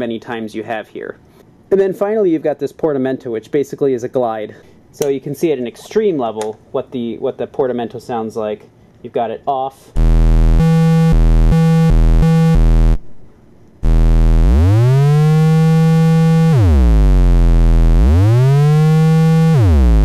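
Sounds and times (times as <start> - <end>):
buzzy synthesizer tone: 9.9 - 13.2, 13.8 - 20.0.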